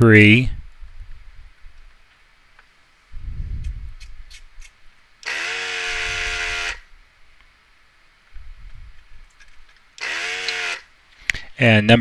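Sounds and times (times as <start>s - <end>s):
vacuum pump motor whine: 5.2s - 6.9s, 10.0s - 10.9s.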